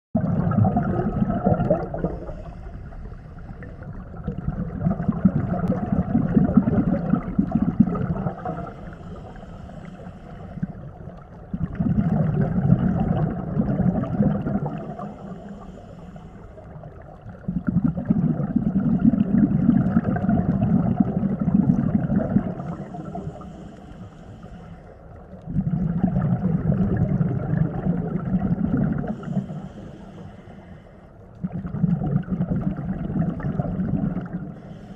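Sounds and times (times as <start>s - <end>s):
bubbling underwater exhales: 0.2s - 34.9s
regulator inhales: 2.1s - 3.8s, 8.7s - 10.9s, 14.9s - 16.8s, 22.6s - 25.1s, 29.1s - 31.2s, 34.5s - 34.9s.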